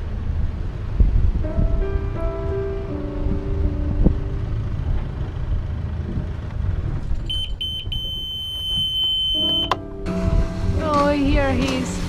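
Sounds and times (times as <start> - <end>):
diesel engine rumble: 0.0 - 12.0
alarm buzzer beeps: 7.3 - 9.8.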